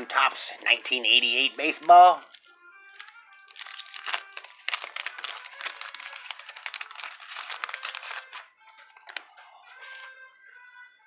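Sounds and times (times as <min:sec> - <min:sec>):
wax paper wrapper crinkling: 0:01.4 - 0:10.1.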